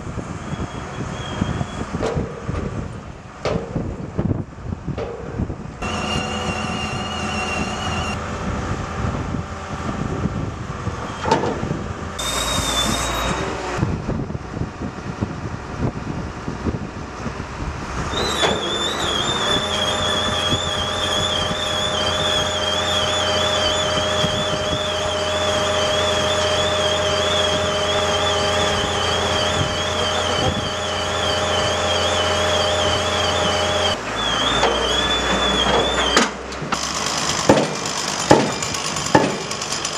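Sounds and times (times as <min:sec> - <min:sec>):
engine hum: 0:00.0 - 0:39.9
high wavering squeal: 0:00.3 - 0:02.0, 0:05.8 - 0:08.2, 0:12.2 - 0:13.8, 0:18.0 - 0:36.4.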